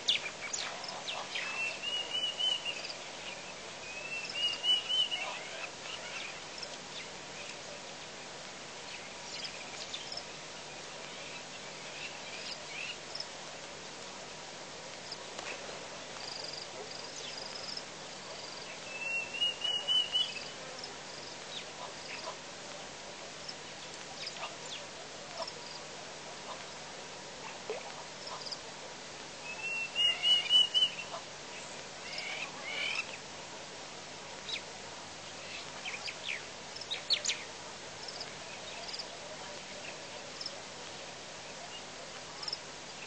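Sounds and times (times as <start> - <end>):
steady background hiss: 0.0 - 43.0.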